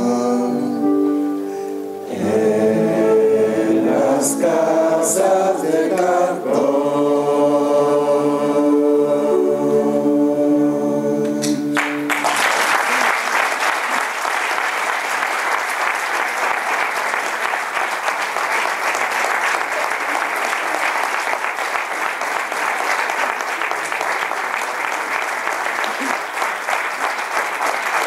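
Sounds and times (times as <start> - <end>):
group singing: 0.0 - 1.1, 2.0 - 11.8
audience applause: 11.8 - 28.0.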